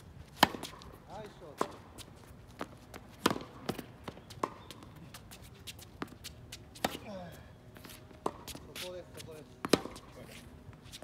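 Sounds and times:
racket hitting tennis ball: 0.2s - 4.8s, 5.6s - 7.2s, 7.8s - 9.0s, 9.6s - 10.2s
tennis ball bouncing: 0.2s - 7.2s, 7.8s - 8.9s, 9.6s - 10.2s.

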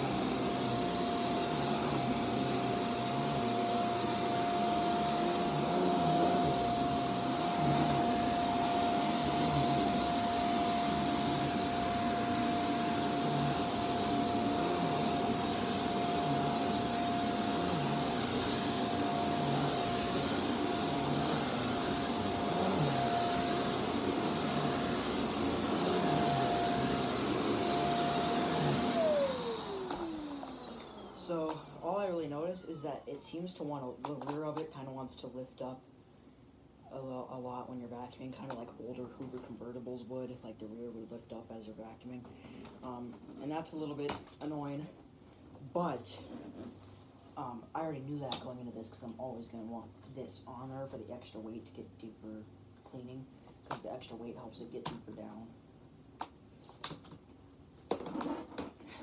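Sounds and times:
vacuum nozzle pushed on carpet: 0.0s - 31.6s
vacuum cleaner motor whine: 0.0s - 33.1s.

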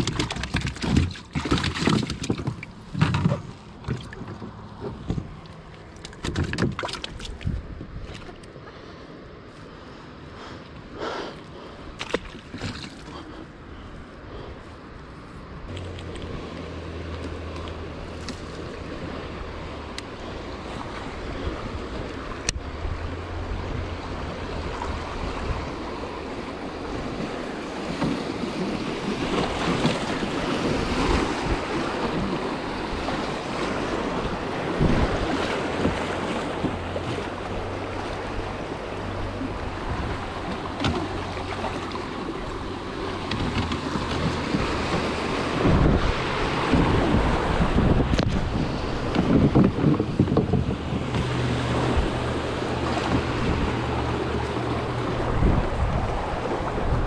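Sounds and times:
water splashing around kayak hull: 0.0s - 57.0s
wind buffeting microphone: 7.1s - 8.4s, 17.4s - 57.0s
river water rushing: 11.0s - 57.0s.

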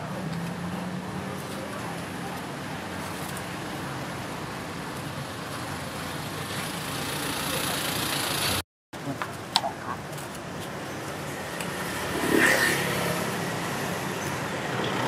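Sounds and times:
vehicle approaching: 0.0s - 8.6s
street traffic noise: 0.0s - 15.0s.

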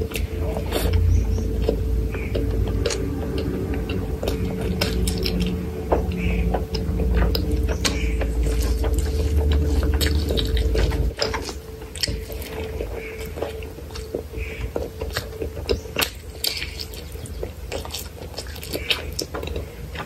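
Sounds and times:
low rumble: 0.0s - 18.4s
wet chewing and lip-smacking: 0.0s - 20.0s.

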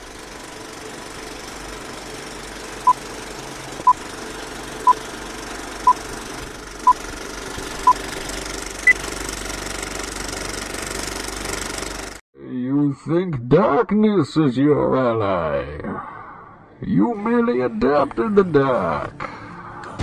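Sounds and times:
film projector rattle: 0.0s - 12.2s.

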